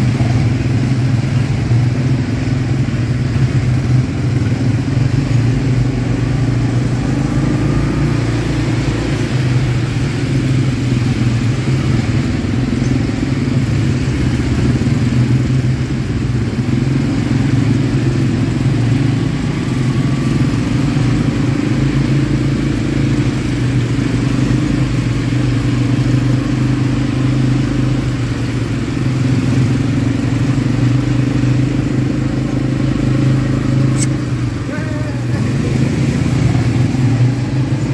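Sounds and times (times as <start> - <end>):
atv engine running: 0.0 - 37.9.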